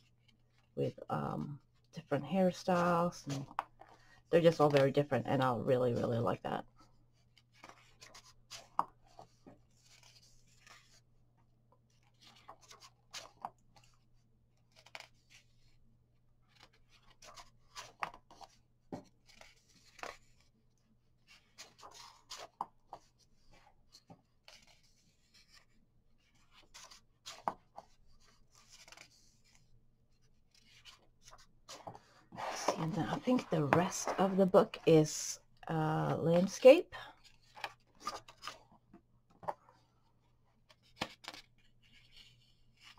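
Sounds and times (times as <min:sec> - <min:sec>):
book pages turning: 0:06.9 - 0:11.1, 0:11.9 - 0:15.8, 0:16.4 - 0:20.6, 0:21.2 - 0:35.1, 0:35.7 - 0:39.9, 0:40.6 - 0:42.9.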